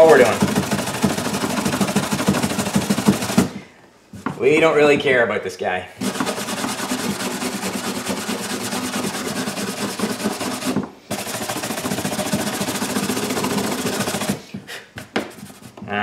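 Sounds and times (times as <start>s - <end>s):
wire brush scrubbing plastic: 0.0s - 3.6s, 6.0s - 14.5s.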